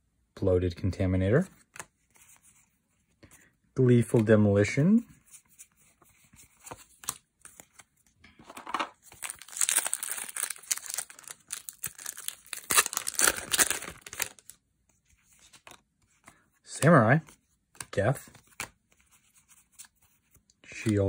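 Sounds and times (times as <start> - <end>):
foil wrapper tearing and crinkling: 9.2 - 14.5.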